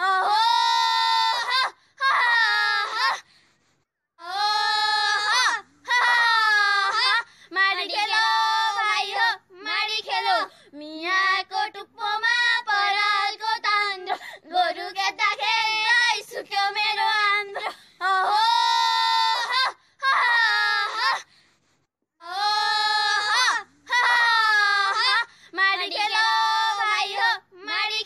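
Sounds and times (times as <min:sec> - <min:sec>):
woman singing unaccompanied: 0:06.9 - 0:18.7.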